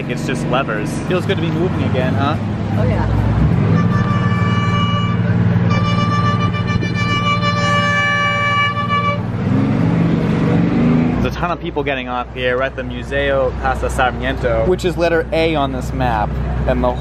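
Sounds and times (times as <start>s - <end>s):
ferry engine running: 0.0s - 17.0s
boat horn blast: 3.6s - 9.3s.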